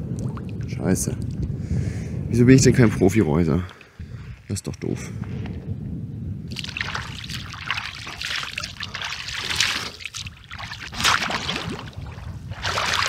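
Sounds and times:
water splashing: 0:06.5 - 0:13.0.

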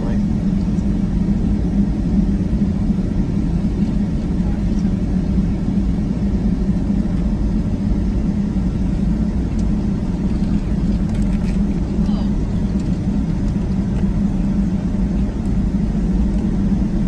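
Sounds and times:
aircraft engines at taxi power: 0:00.0 - 0:17.0
wheels rolling on taxiway: 0:06.9 - 0:16.8.

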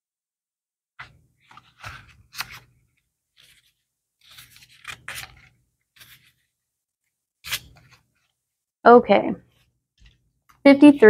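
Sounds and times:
book pages rustling: 0:01.0 - 0:08.4, 0:09.5 - 0:10.6.

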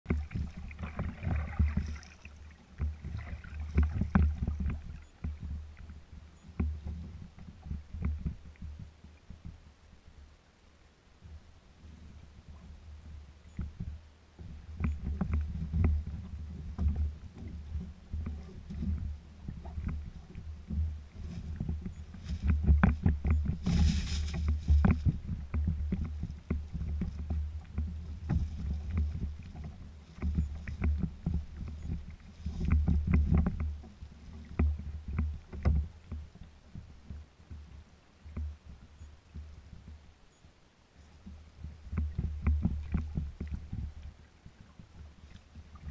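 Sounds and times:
low uneven rumble: 0:00.0 - 0:45.9
water slapping against kayak hull: 0:00.1 - 0:05.6, 0:14.8 - 0:36.3.

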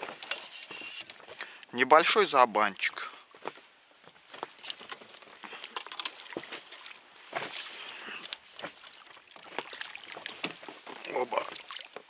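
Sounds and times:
water lapping against boat: 0:04.5 - 0:12.0
short sharp splashes: 0:05.5 - 0:12.0.

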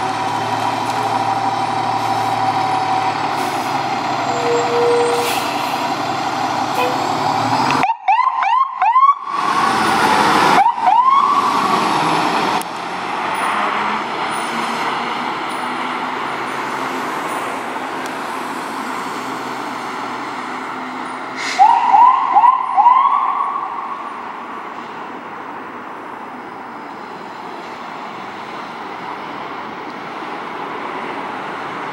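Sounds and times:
truck engine and road noise: 0:00.0 - 0:31.9
fire engine siren whooping: 0:07.7 - 0:11.9, 0:21.4 - 0:24.0.

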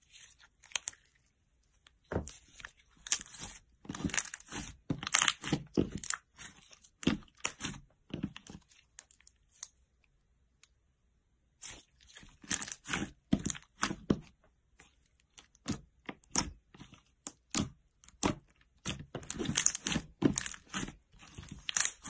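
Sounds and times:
slime crackling and popping: 0:17.4 - 0:22.0.

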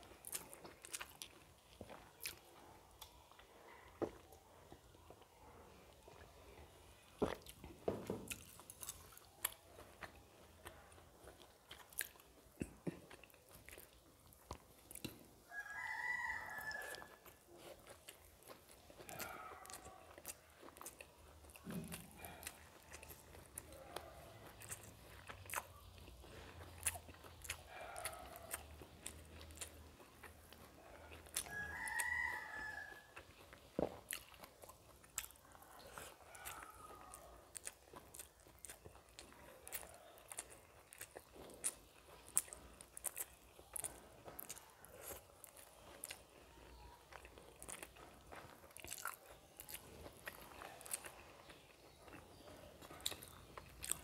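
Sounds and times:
wet chewing: 0:00.0 - 0:54.0
rooster crowing: 0:15.5 - 0:17.2, 0:31.4 - 0:33.2.

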